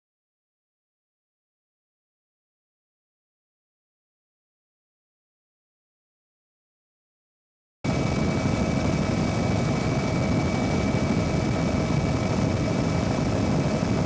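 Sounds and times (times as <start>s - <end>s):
constant high whine: 7.9s - 14.0s
helicopter engine and rotor rumble: 7.9s - 14.0s.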